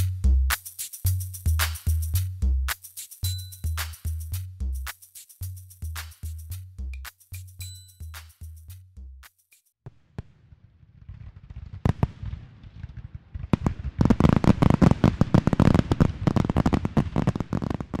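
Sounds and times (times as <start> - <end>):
fireworks bangs and crackles: 9.9 - 18.0.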